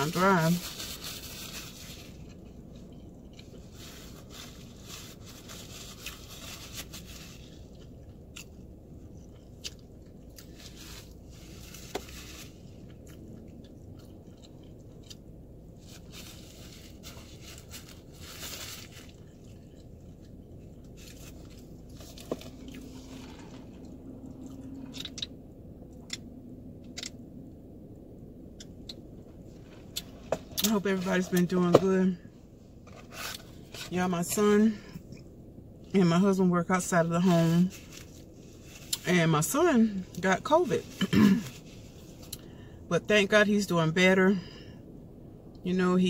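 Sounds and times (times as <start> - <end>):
chewing and biting food: 12.8 - 15.3.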